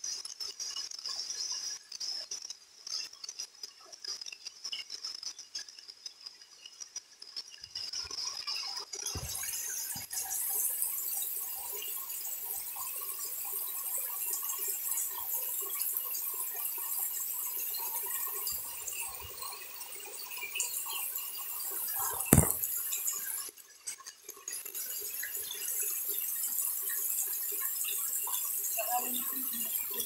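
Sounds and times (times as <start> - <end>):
rain splashing into water: 9.2 - 23.5, 24.3 - 30.0
sharp thump: 22.0 - 22.7.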